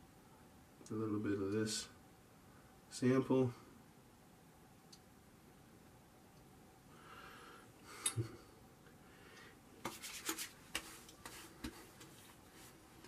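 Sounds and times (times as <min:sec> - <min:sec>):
soft rustle: 0:09.8 - 0:13.0.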